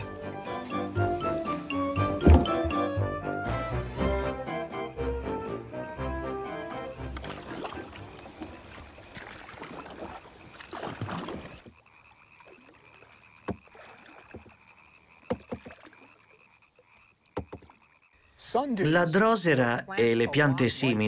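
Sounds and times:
frogs trilling: 6.8s - 21.0s
kayak paddle splashing: 6.9s - 18.3s.

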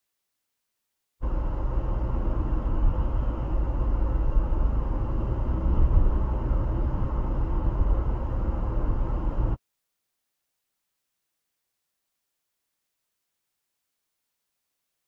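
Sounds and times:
road and engine noise inside car: 1.2s - 9.6s.

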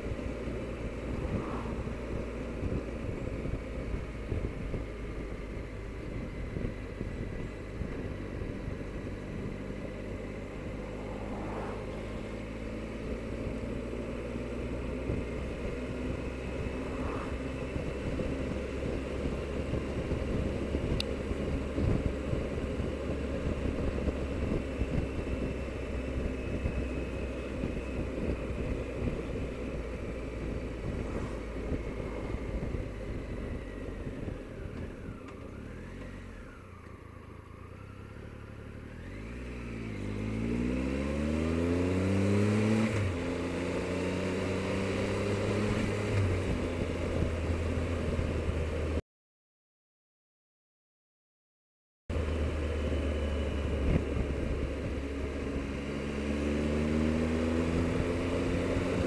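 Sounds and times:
faint whine: 0.0s - 3.5s, 10.3s - 12.7s, 16.2s - 18.4s
motorcycle engine running: 0.0s - 49.0s, 52.1s - 59.0s
wind rush on microphone: 0.2s - 9.6s, 16.1s - 25.6s, 27.5s - 35.2s.

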